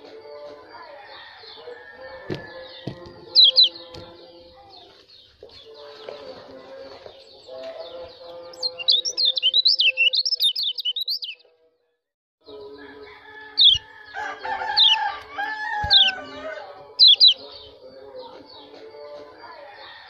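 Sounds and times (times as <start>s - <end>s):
bird twittering song: 1.2s - 11.4s, 13.1s - 19.2s
sharp high bird chirps: 2.4s - 3.9s, 8.5s - 11.4s, 13.6s - 14.0s, 14.7s - 15.2s, 15.8s - 16.3s, 17.0s - 17.7s.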